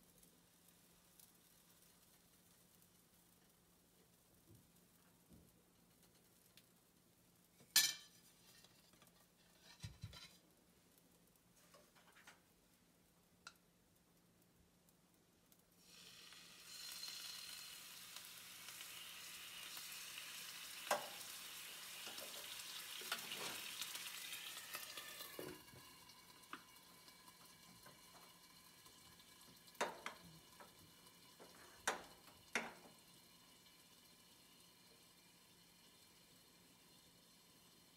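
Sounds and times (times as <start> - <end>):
water sizzling in hot frying pan: 0.0 - 10.5, 14.9 - 37.9
cookware clinking: 7.8 - 8.2.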